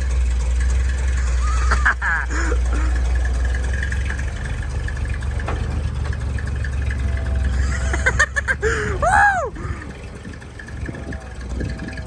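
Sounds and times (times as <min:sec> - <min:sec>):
truck engine running low: 0:00.0 - 0:12.0
siren whoop: 0:09.0 - 0:09.6.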